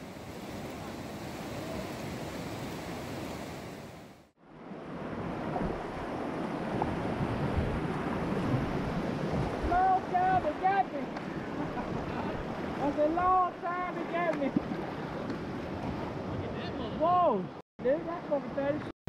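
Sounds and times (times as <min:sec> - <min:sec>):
wind on microphone: 0:04.8 - 0:13.3.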